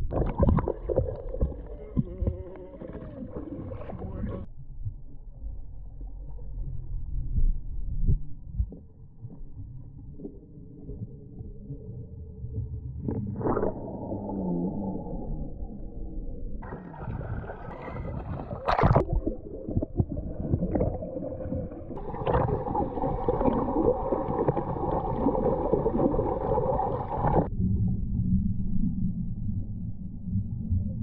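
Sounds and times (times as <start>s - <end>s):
water splash: 0.0s - 4.5s, 16.6s - 27.5s
water sloshing and gurgling: 0.0s - 27.5s.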